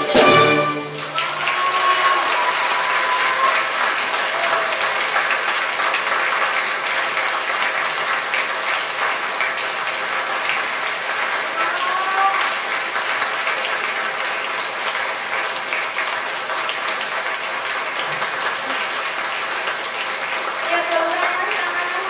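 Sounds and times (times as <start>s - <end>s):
audience applauding: 0.0s - 22.0s.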